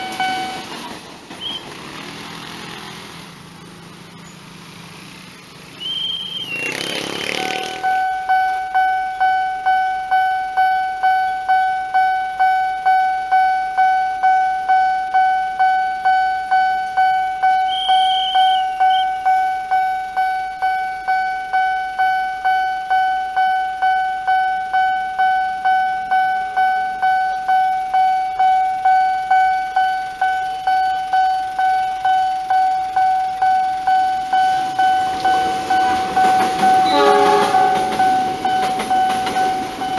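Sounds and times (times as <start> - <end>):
motorcycle engine: 0.0 - 8.2
short high whistles: 1.4 - 1.7, 5.8 - 7.8, 17.6 - 19.2
level crossing bell ringing: 19.3 - 39.9.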